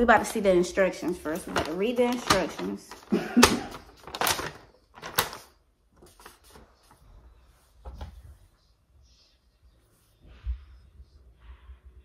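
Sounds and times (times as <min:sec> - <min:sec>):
paper rustling and crackling: 0:00.0 - 0:08.4.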